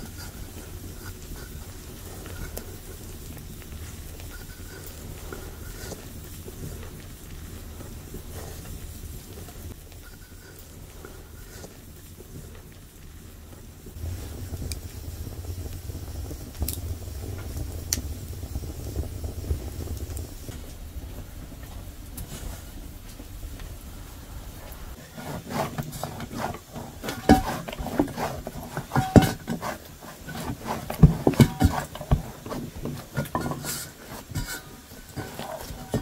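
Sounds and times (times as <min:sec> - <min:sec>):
wood fire crackling: 0:00.0 - 0:36.0
dough slapping in metal bowl: 0:25.0 - 0:36.0.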